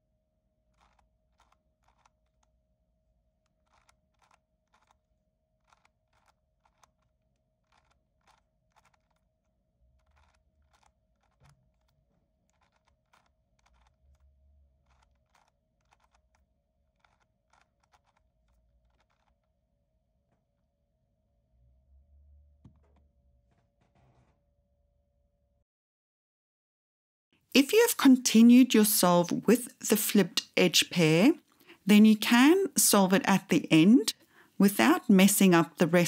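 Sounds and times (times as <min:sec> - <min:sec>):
puzzle cube layers clicking: 0:00.7 - 0:02.6, 0:03.2 - 0:19.4.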